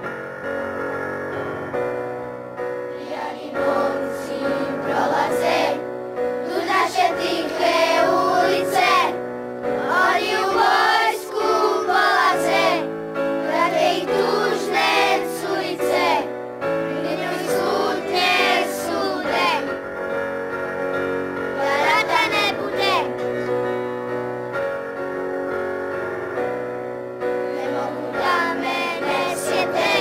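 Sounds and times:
held keyboard chords: 0.0 - 30.0
boys' choir singing: 2.9 - 19.8, 21.5 - 23.7, 27.4 - 30.0.

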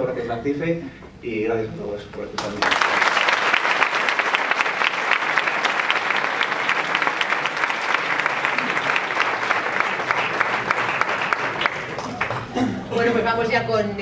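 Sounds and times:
audience applauding: 2.4 - 12.9.

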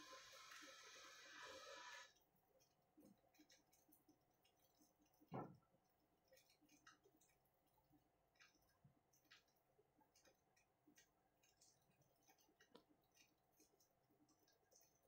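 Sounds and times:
faint hiss: 0.0 - 2.1.

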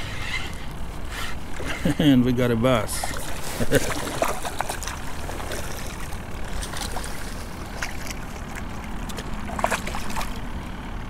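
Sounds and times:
water lapping beside a kayak: 0.0 - 11.0
fish thrashing at the surface: 2.8 - 10.6.

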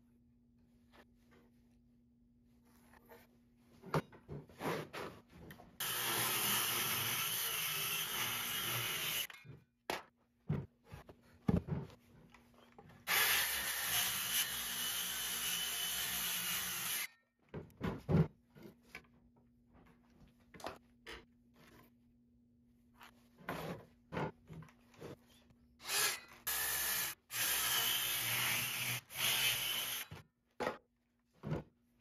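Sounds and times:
power tool cutting wood: 5.8 - 9.3, 13.1 - 17.1, 25.8 - 30.1.

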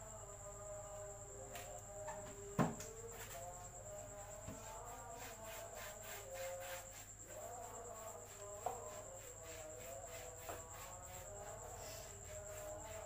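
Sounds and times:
crickets chirping: 0.0 - 13.0
short knock: 2.1 - 3.0.

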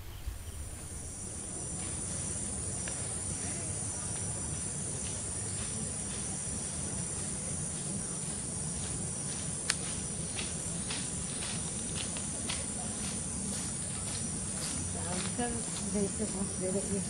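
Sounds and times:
low rumble: 0.0 - 3.0
insects chirping: 0.0 - 17.0.

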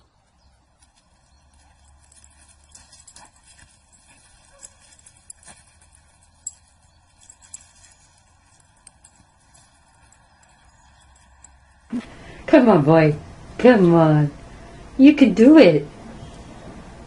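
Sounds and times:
low steady hum: 0.0 - 17.0
paws tapping on leafy grass: 0.2 - 12.2.

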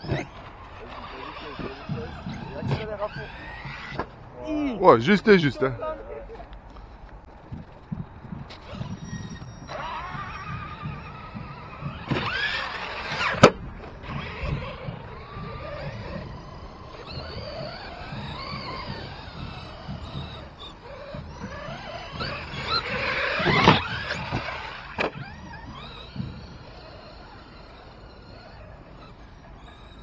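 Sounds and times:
electric toy car motors whining: 0.0 - 6.0, 7.5 - 30.0.

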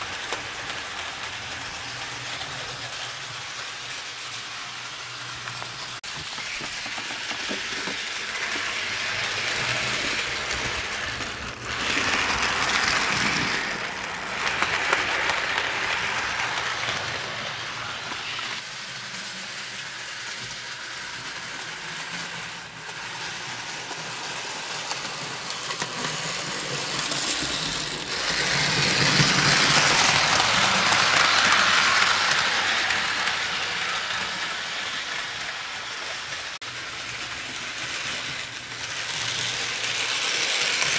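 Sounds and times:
model train whirring rattle: 0.0 - 40.9.

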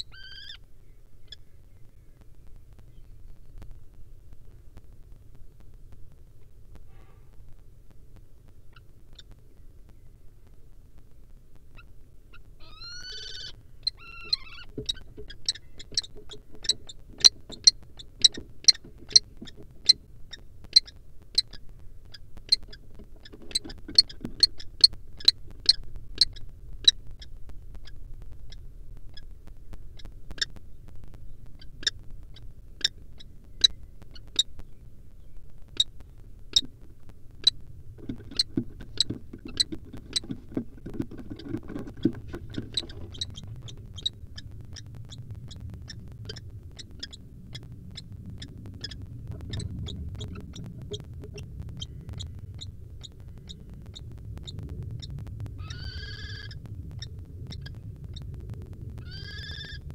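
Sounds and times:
kestrel calling: 0.0 - 2.2, 11.8 - 29.3, 41.2 - 58.4, 59.0 - 59.9
low rumble: 0.0 - 59.9.

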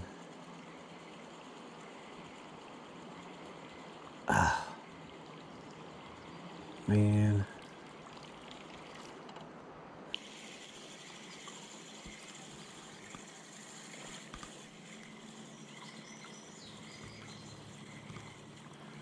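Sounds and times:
insects buzzing: 0.0 - 9.4, 10.1 - 19.0
faint bird chirps: 10.6 - 19.0.

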